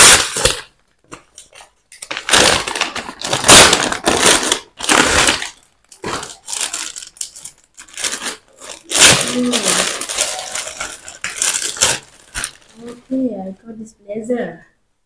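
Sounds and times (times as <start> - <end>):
plastic packaging crinkling: 0.0 - 13.3.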